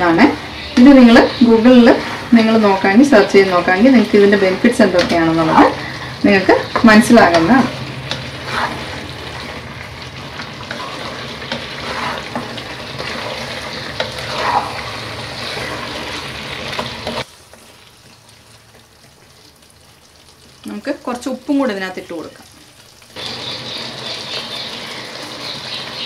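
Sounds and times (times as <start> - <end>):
food sizzling in a pan: 0.0 - 26.0
spoon stirring and scraping: 6.7 - 17.7.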